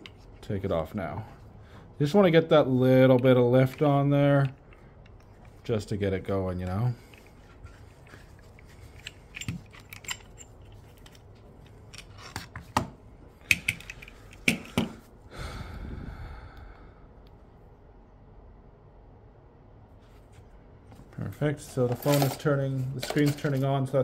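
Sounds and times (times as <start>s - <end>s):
phone and clamp clicks and knocks: 12.3s - 15.0s
soft rubbing or sliding: 19.9s - 20.6s.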